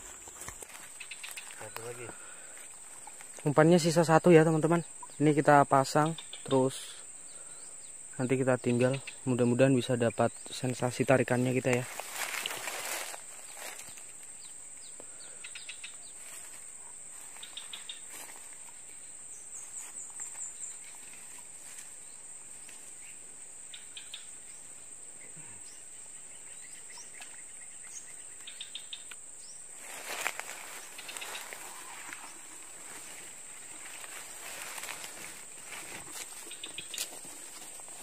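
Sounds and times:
high-pitched insect drone: 0.0 - 38.0
bird chirps: 0.7 - 3.2, 4.7 - 11.8, 13.4 - 16.4, 17.3 - 22.2, 23.0 - 29.7, 30.4 - 34.2, 36.3 - 37.2.

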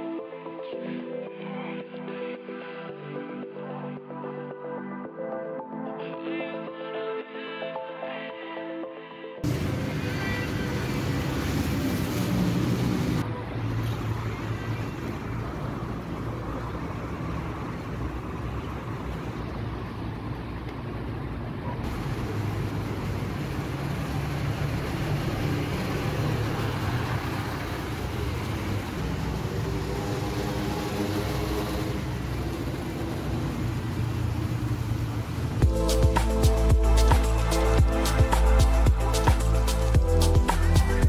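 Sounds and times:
road hiss: 9.4 - 41.0
vehicle low rumble: 9.4 - 41.0.

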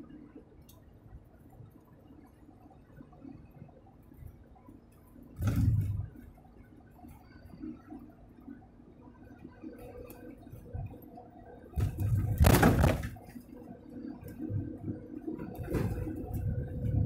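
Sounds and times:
faint steady hum: 0.0 - 17.0
truck cab road rumble: 8.1 - 17.0
loud rattling noise: 11.8 - 13.2.

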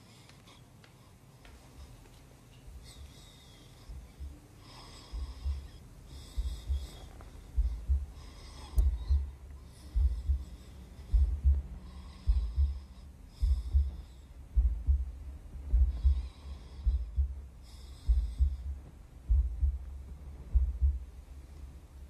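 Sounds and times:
heartbeat thumps: 3.8 - 22.0.

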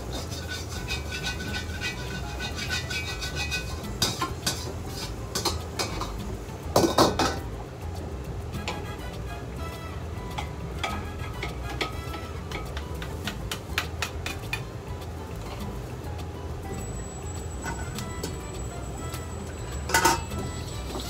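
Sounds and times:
metal ladle scraping a wok: 0.0 - 6.2, 8.6 - 13.3, 19.5 - 21.0
wok clanging on burner: 0.0 - 7.5, 10.4 - 14.7, 16.8 - 18.5, 19.2 - 21.0
gas burner rumble: 0.0 - 21.0.

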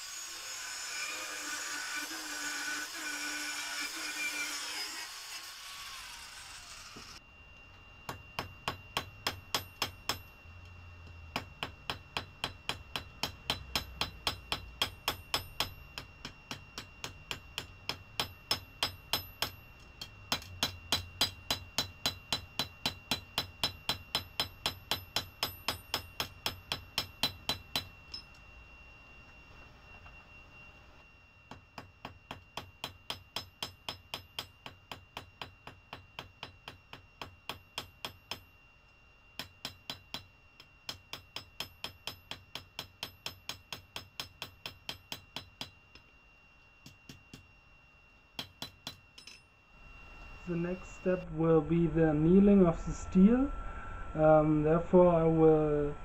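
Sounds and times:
hammer striking steel on anvil: 8.1 - 10.4, 11.3 - 28.4, 31.5 - 38.5, 39.4 - 46.1, 48.4 - 49.5.

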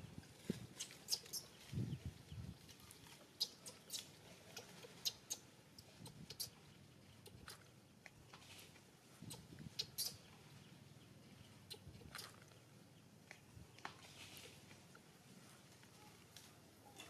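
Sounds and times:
soft rustling: 0.0 - 5.0, 8.2 - 9.7, 13.2 - 17.0
baby monkey squeaking: 0.7 - 1.7, 3.4 - 5.4, 6.0 - 6.6, 9.2 - 10.3, 11.7 - 12.5.

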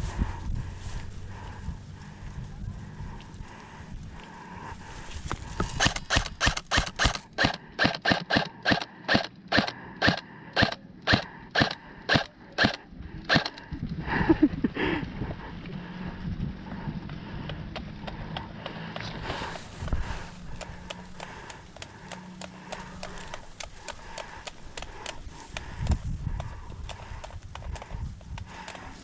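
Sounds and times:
airsoft gun shots: 5.7 - 13.6
scuffling noise: 18.9 - 20.5.

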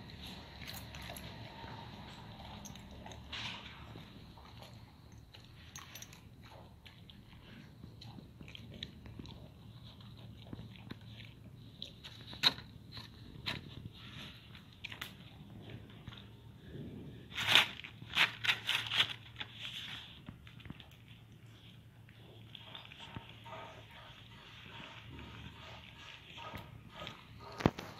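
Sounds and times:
dog biting and chewing: 0.0 - 16.1.

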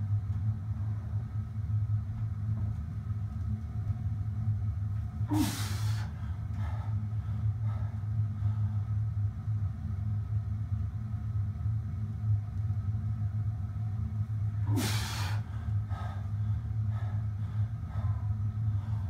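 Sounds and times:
machine humming: 0.0 - 19.0
man exhaling sharply: 5.3 - 6.1, 14.6 - 15.5
man breathing: 5.3 - 9.1, 14.5 - 19.0.

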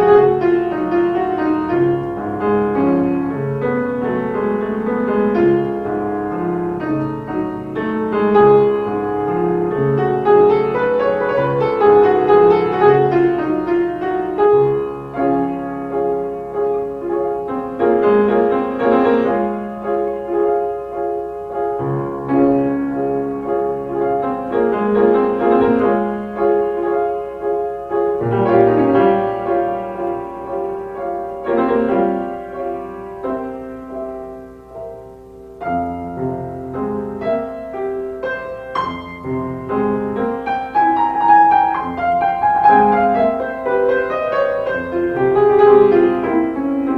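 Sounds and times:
piano music: 0.0 - 46.9.

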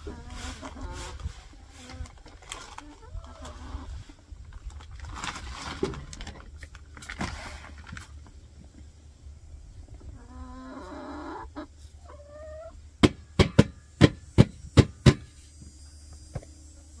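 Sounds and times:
chickens clucking: 0.0 - 5.0, 8.1 - 14.6
sharp knocks: 13.0 - 15.3.

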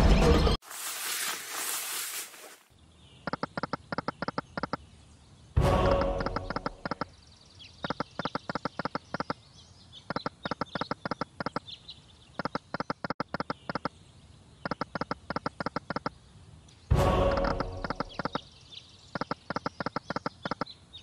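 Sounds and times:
faint bird-like chirps: 6.5 - 16.2, 17.5 - 21.0.

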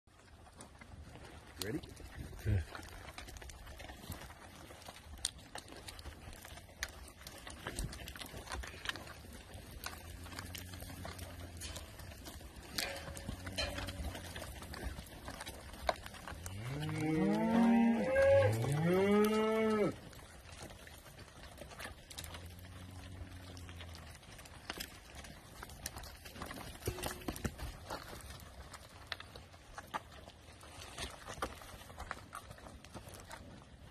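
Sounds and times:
cattle lowing quietly: 0.1 - 33.9
cow mooing loudly: 16.5 - 20.0.

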